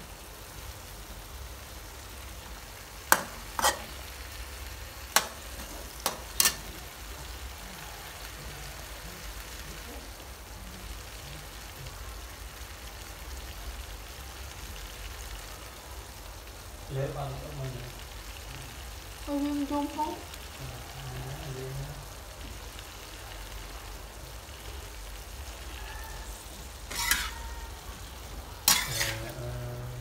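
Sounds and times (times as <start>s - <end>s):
food frying in a wok: 0.0s - 30.0s
metal spatula clacking on wok: 6.0s - 6.6s.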